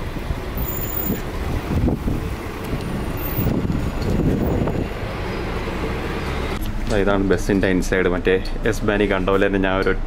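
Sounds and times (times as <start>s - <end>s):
bus engine and tyres rumbling: 0.0s - 10.0s
wind buffeting microphone: 1.0s - 5.1s.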